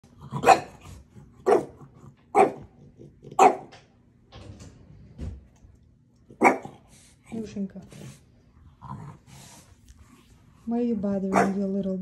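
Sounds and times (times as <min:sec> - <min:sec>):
dog barking: 0:00.4 - 0:00.8, 0:01.4 - 0:02.7, 0:03.3 - 0:03.8, 0:06.4 - 0:06.8, 0:11.3 - 0:11.6.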